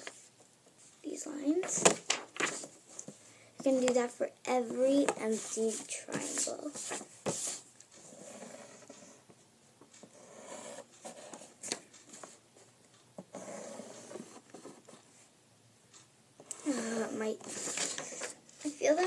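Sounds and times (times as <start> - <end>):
pen scratching on paper: 5.2 - 9.2, 10.1 - 11.5, 13.3 - 15.0.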